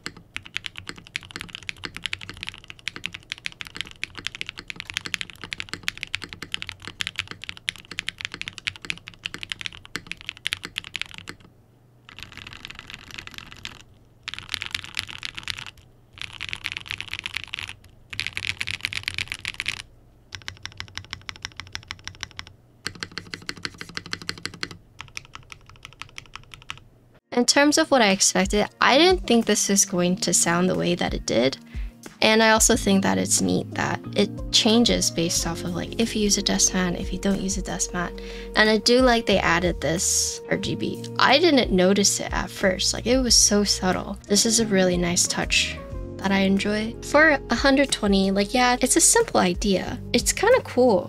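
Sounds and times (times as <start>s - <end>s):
mechanical keyboard typing: 0.0s - 11.5s, 12.1s - 26.8s.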